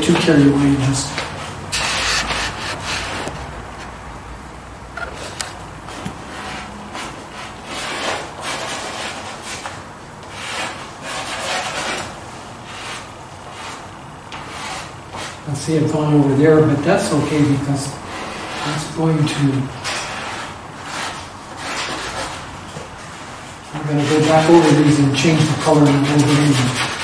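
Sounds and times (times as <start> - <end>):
pastel scratching on paper: 1.7 - 3.2, 6.3 - 9.7, 10.3 - 12.1, 14.5 - 15.4, 19.8 - 22.5, 23.8 - 27.0.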